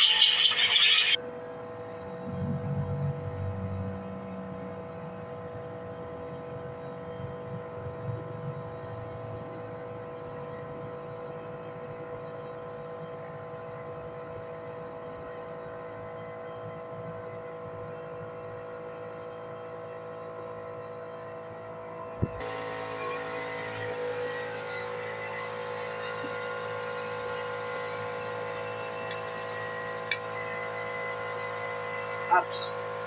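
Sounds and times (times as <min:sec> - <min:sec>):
machine hum: 0:00.0 - 0:33.0
low throbbing: 0:01.6 - 0:11.4.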